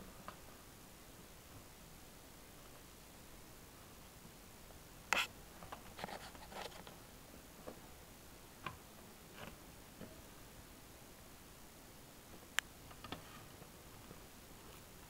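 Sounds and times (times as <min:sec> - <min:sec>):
claws scratching fabric: 0:06.0 - 0:06.8.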